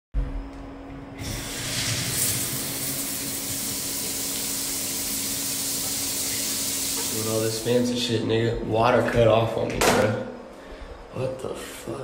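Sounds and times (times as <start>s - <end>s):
shower water spraying: 1.2s - 7.6s.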